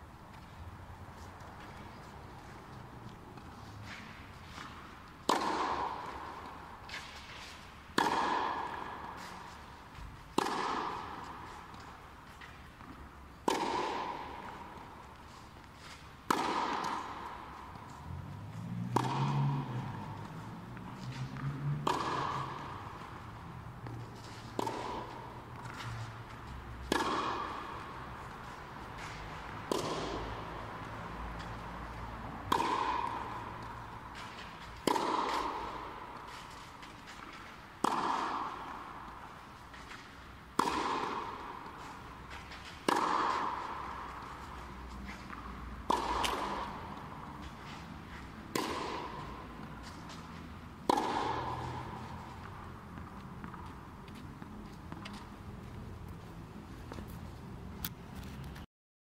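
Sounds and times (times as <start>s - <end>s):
tennis racket hitting ball: 0.3s - 58.3s.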